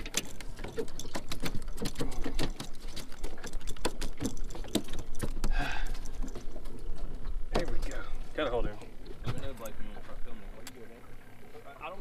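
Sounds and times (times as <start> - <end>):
fish thrashing with slaps and knocks: 0.0 - 8.1.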